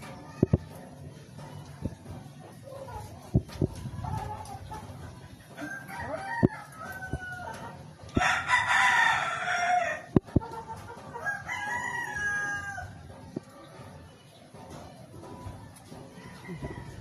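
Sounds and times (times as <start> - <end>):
roosters crowing: 5.4 - 13.3, 15.9 - 17.0.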